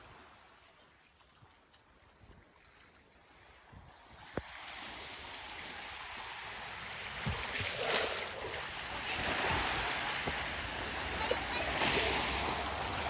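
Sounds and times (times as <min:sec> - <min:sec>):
small waves washing on shore: 0:00.0 - 0:13.0.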